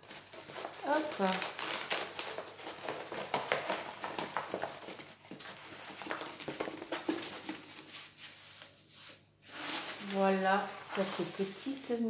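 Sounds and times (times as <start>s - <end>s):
paper rustling and tapping: 0.0s - 8.7s.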